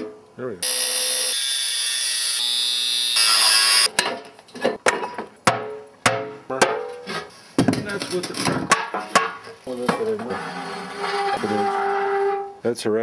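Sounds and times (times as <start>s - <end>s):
angle grinder cutting metal: 0.6s - 3.9s.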